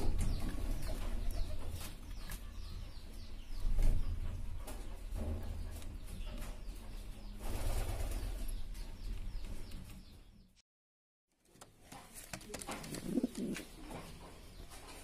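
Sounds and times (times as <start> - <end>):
pigeon pecking and scuffling: 11.4 - 15.0
pigeons cooing: 12.5 - 14.0.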